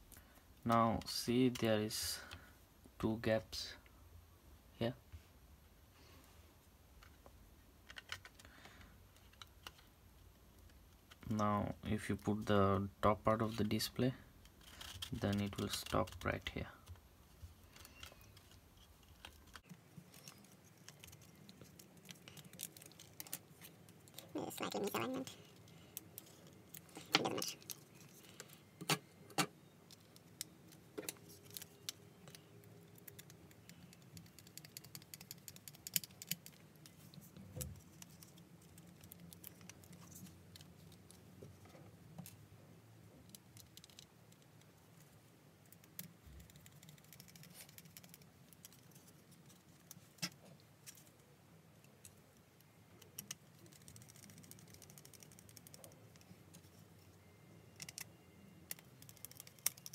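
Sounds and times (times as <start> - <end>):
plastic parts clicking and knocking: 7.8 - 9.9, 58.7 - 59.9.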